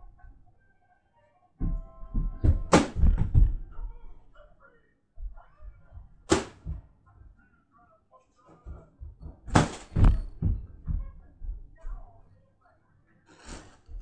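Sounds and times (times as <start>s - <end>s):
hand slapping a light toy: 6.3s - 6.8s.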